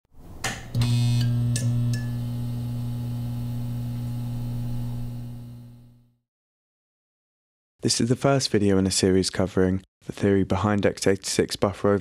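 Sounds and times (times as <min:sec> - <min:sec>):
low synthesized hum: 0:00.8 - 0:06.1.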